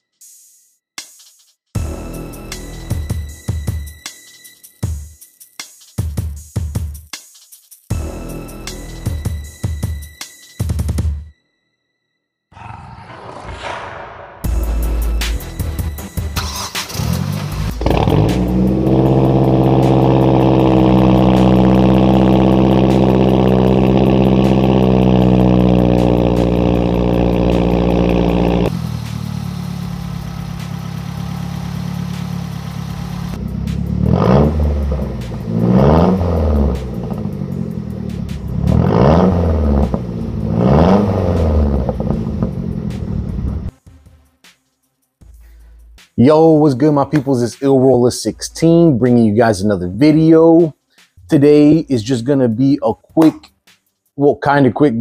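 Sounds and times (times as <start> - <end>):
car engine droning and revving: 13.0 - 43.7.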